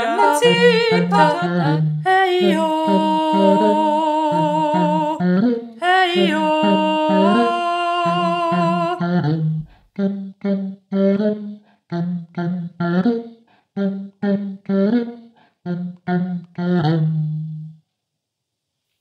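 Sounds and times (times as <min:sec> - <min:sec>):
woman singing long note: 0:00.0 - 0:05.2, 0:05.8 - 0:09.1
hummed bass line: 0:00.0 - 0:05.5.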